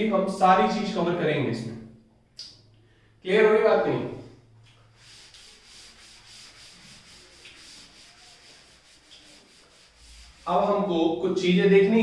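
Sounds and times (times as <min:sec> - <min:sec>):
duster rubbing chalkboard: 0:04.8 - 0:10.9.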